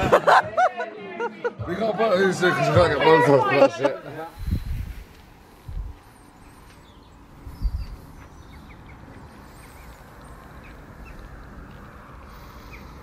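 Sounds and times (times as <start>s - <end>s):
birds chirping: 4.0s - 13.0s
wind rumble on microphone: 4.3s - 9.4s.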